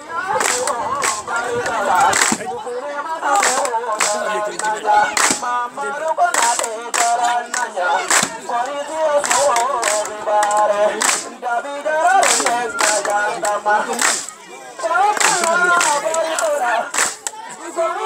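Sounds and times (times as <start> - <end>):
voices singing a dance song: 0.0 - 18.0
sharp claps: 0.4 - 2.5, 3.3 - 5.5, 6.2 - 11.3, 12.2 - 14.4, 15.1 - 17.4.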